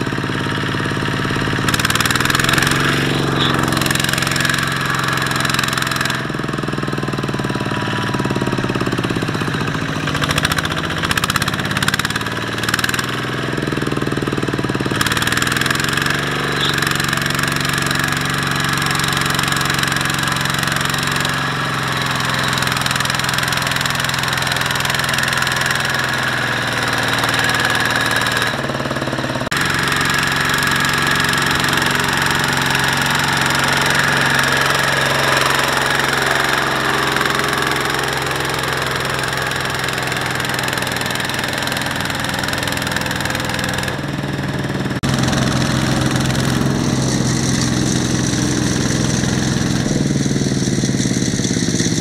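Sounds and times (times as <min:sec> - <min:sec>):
diesel tractor engines under load: 0:00.0 - 0:52.0.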